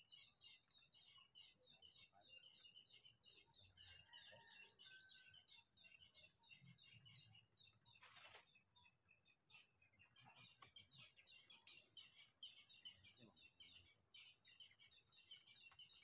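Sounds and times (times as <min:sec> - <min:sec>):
short rustle: 0:08.0 - 0:08.5.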